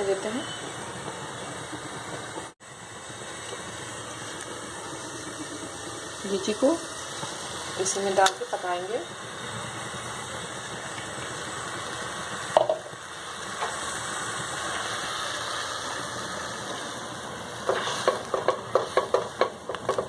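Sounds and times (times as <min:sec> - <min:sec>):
sugar water bubbling in a pan: 0:00.0 - 0:20.0
spatula scraping and tapping a pan: 0:17.6 - 0:20.0.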